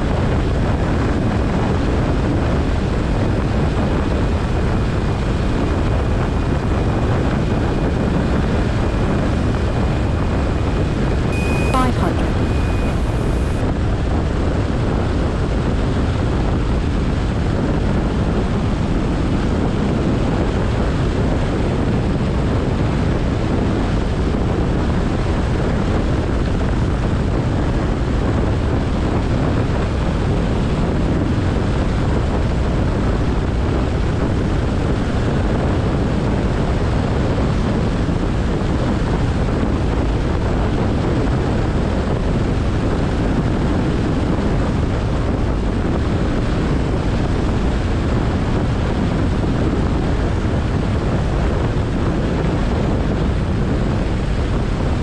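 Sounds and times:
aircraft engine and propeller drone: 0.0s - 25.3s.

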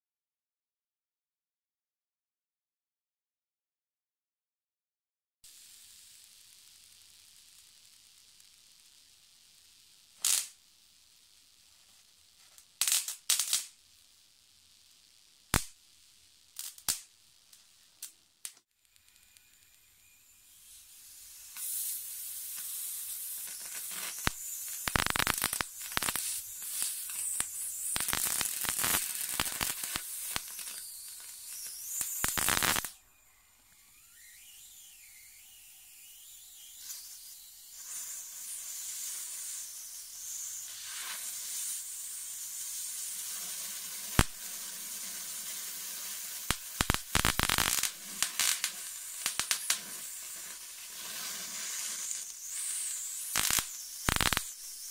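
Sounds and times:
electric discharge hiss: 5.4s - 33.0s, 33.9s - 54.9s
crackling sparks: 5.4s - 54.9s
sharp spark snap: 5.5s - 10.7s, 12.0s - 13.8s, 15.4s - 33.0s, 36.2s - 54.9s.

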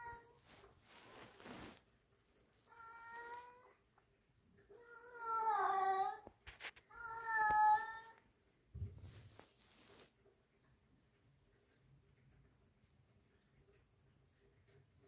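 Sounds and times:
cat meowing: 6.9s - 8.2s.

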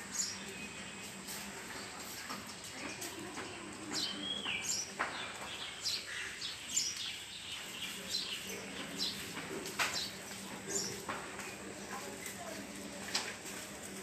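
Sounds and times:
high chirping calls: 4.0s - 9.3s.

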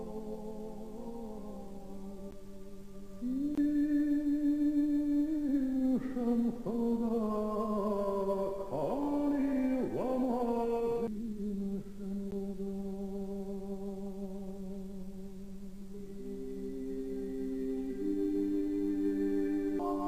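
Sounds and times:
ambient drone music: 16.0s - 20.0s.

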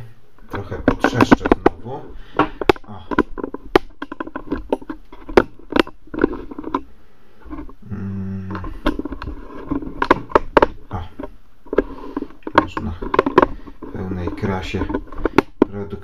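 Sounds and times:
low hum: 1.6s - 16.0s
razor scraping stubble: 8.6s - 15.6s.

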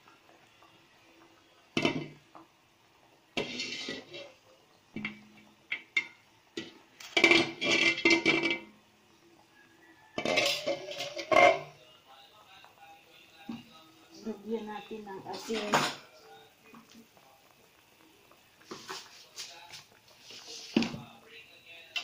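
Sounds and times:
metal cookware clattering: 1.8s - 2.2s, 3.4s - 4.4s, 5.0s - 8.7s, 10.2s - 11.7s, 15.0s - 16.1s.

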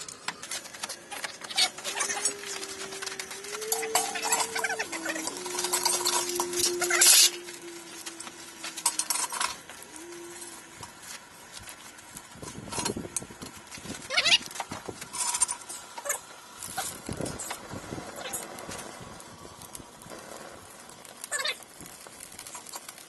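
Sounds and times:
steady whine: 0.0s - 23.0s
metal knocking and scraping: 0.2s - 9.8s.

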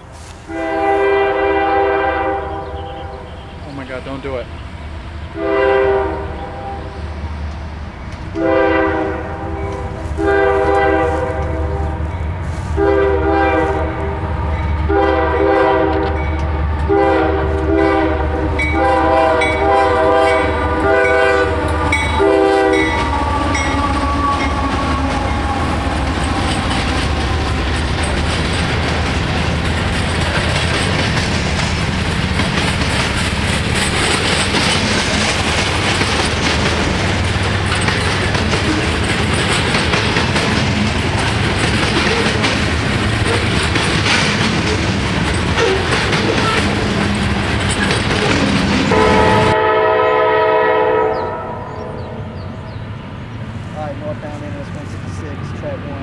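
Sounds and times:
locomotive engine rumble: 0.0s - 56.0s
diesel locomotive horn blasts: 0.4s - 3.6s, 5.4s - 7.0s, 8.3s - 26.2s, 48.9s - 52.5s
wheels clicking over rail joints: 22.8s - 49.3s.

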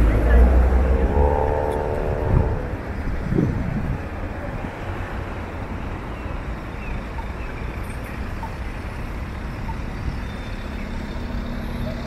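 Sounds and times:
cars passing on road: 0.0s - 12.0s.

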